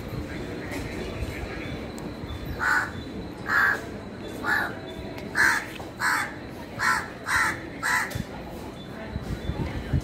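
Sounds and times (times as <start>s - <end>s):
crow cawing: 2.6s - 3.8s, 5.4s - 8.1s.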